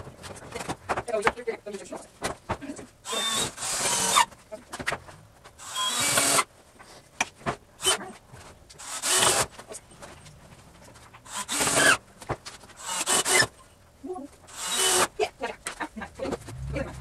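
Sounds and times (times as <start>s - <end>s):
cordless drill driving screws: 3.1s - 4.3s, 5.6s - 6.5s, 8.8s - 9.5s, 11.3s - 12.0s, 12.8s - 13.6s, 14.5s - 15.1s.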